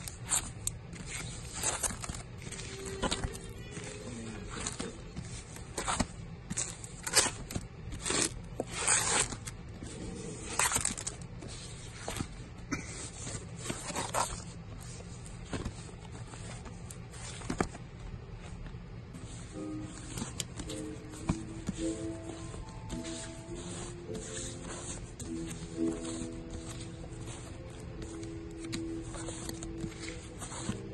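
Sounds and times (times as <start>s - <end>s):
records in plastic sleeves swishing: 19.2s - 30.9s.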